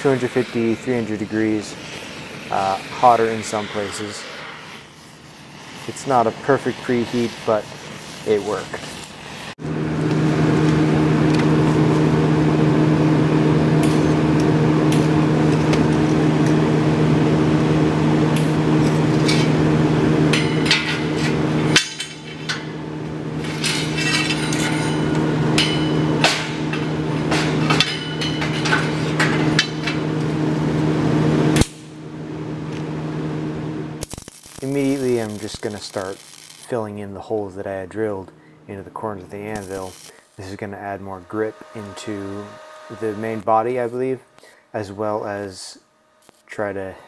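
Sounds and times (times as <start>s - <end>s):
steady machine hum: 0.0s - 47.0s
steel pieces clinking on anvil: 23.5s - 26.8s, 27.4s - 30.0s.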